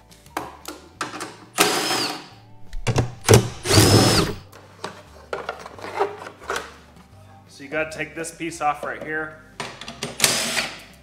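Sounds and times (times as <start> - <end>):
cordless drill spinning: 1.6 - 2.3, 3.3 - 4.4.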